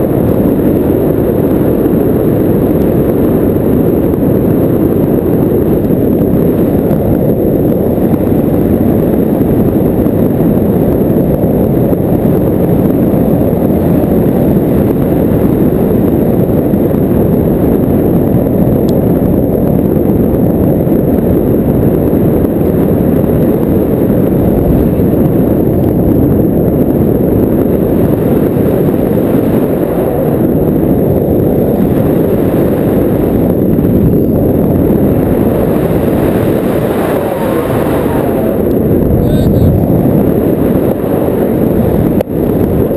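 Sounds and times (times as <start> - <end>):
wind buffeting microphone: 0.0 - 42.9.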